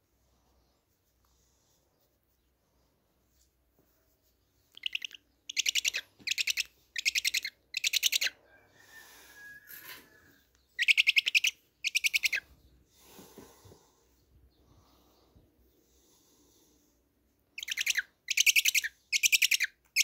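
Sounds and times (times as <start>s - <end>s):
owl chick rattling calls: 4.7s - 8.4s, 10.6s - 12.5s, 17.6s - 20.0s.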